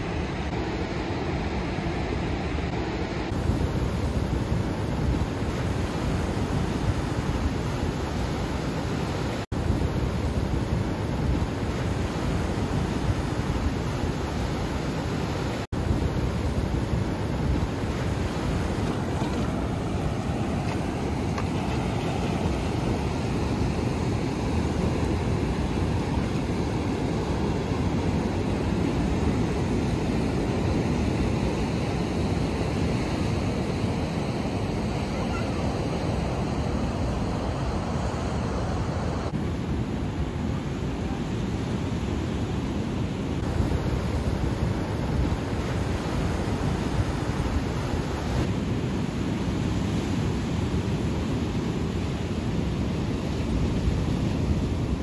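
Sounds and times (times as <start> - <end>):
wind buffeting microphone: 2.1 - 32.8.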